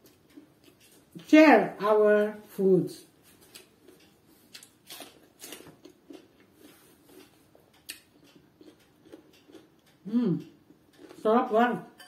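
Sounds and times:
person biting and chewing vegetable: 3.4 - 10.0.

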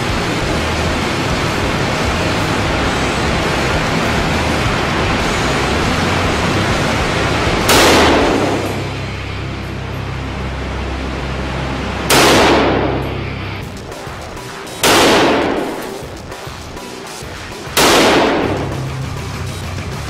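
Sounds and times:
rifle shots echoing indoors: 7.3 - 9.1, 12.1 - 16.6, 17.2 - 19.0.

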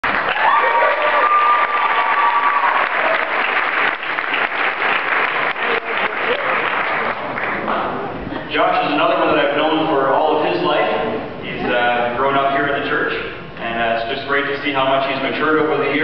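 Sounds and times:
crowd clapping: 0.0 - 8.0.

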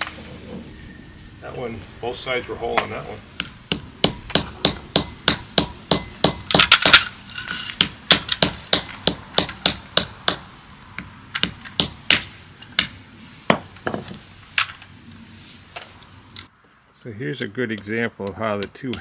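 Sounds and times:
small hammer tapping nuts: 17.4 - 19.0.

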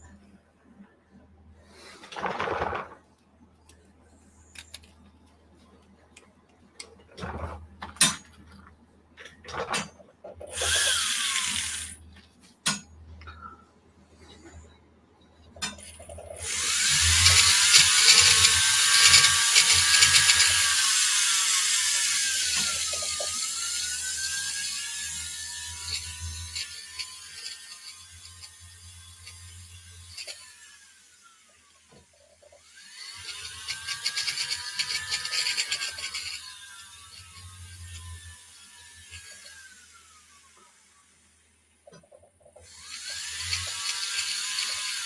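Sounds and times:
rotary tool whining: 9.5 - 12.0, 15.6 - 40.9, 42.0 - 45.0
small parts clicking and tapping: 15.6 - 30.5, 31.9 - 39.6, 41.8 - 45.0.

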